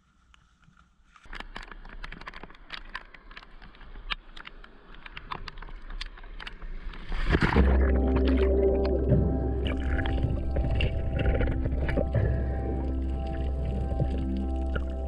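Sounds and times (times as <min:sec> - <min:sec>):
camera splashing into water: 0:07.1 - 0:15.0
music with held tones: 0:07.5 - 0:15.0.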